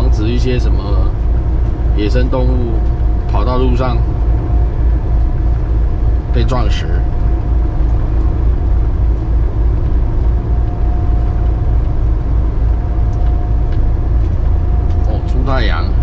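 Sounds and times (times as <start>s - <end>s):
car cabin road and engine rumble: 0.0s - 16.0s
faint whine: 0.0s - 16.0s.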